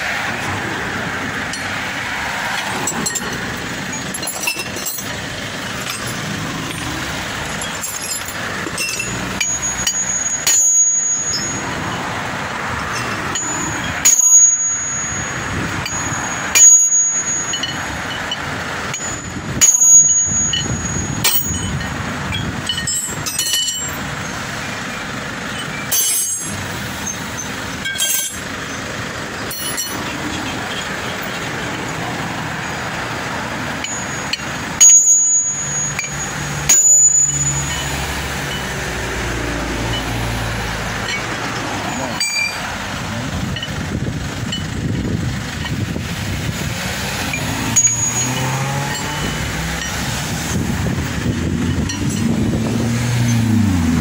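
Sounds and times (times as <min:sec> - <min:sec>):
road noise hum: 0:00.0 - 0:54.0
hammer striking steel: 0:02.6 - 0:11.9, 0:12.9 - 0:24.0, 0:25.6 - 0:28.5, 0:29.5 - 0:30.2, 0:33.8 - 0:38.8, 0:41.0 - 0:42.7, 0:47.2 - 0:50.0.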